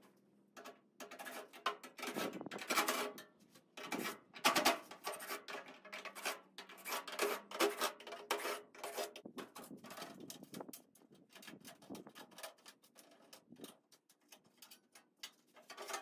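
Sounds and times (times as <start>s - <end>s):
sheet metal scraping and rattling: 3.8s - 16.0s.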